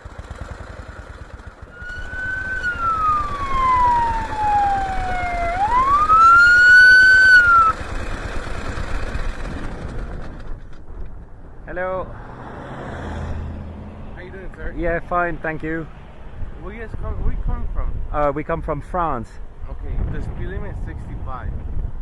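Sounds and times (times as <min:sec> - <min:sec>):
motorcycle engine rumble: 0:00.0 - 0:12.2
police siren wail: 0:01.8 - 0:07.8.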